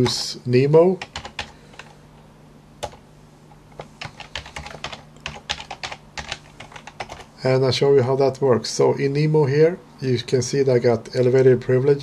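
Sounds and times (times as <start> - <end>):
faint steady hum: 0.0 - 12.0
keyboard keystrokes: 1.0 - 1.9, 3.8 - 7.3.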